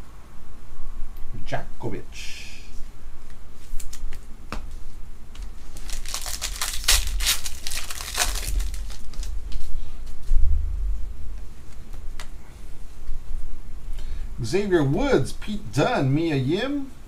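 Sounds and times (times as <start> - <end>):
foil wrapper tearing and crinkling: 5.4 - 9.4.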